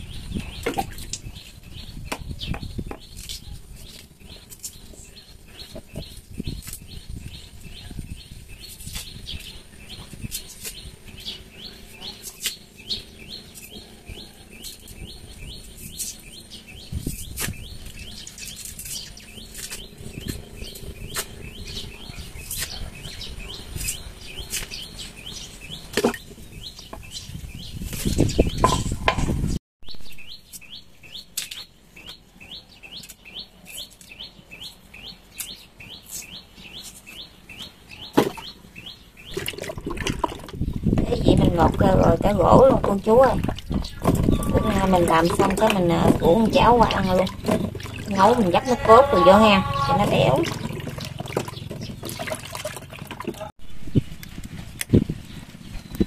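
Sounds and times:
small birds chirping: 0.0s - 56.0s
knife peeling roots: 3.0s - 5.0s, 5.6s - 6.9s, 8.6s - 11.0s, 11.8s - 12.7s, 15.6s - 21.4s, 22.4s - 23.0s, 23.7s - 24.8s, 30.5s - 32.2s, 32.9s - 34.8s, 35.4s - 37.7s.

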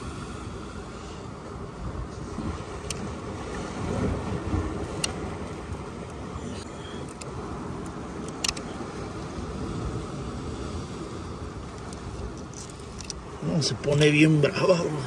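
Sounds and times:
wind on microphone: 0.0s - 14.1s
sea surf rumble: 0.0s - 15.0s
light clicks: 7.0s - 8.7s.

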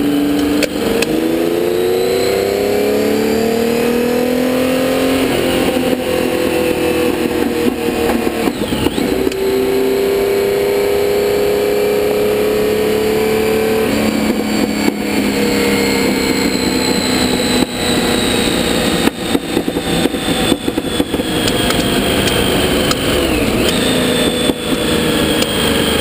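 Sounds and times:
racing engine revving: 0.0s - 26.0s.

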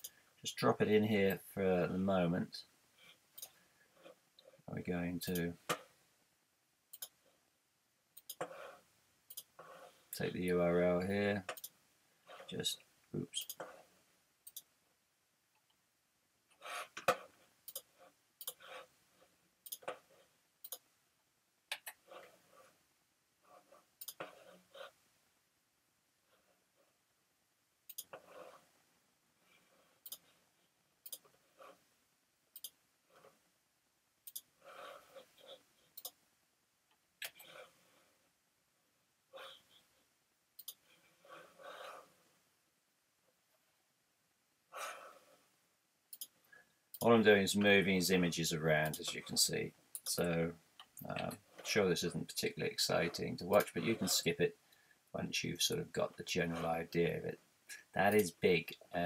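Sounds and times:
faint breathing: 44.7s - 45.6s, 54.6s - 55.1s.

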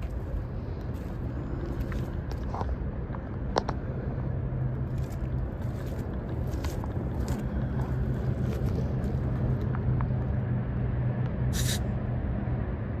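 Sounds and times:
short hiss: 11.5s - 11.8s.

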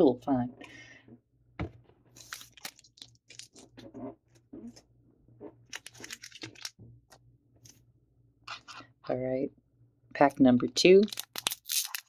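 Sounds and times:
foil wrappers crinkling: 5.7s - 6.7s, 11.0s - 12.0s.

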